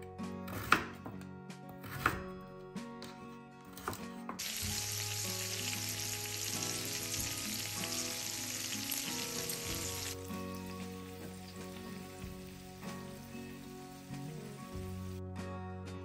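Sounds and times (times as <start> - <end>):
knife chopping on wooden board: 0.5 - 1.2, 1.8 - 2.2
meatballs sizzling in a pan: 4.4 - 15.2.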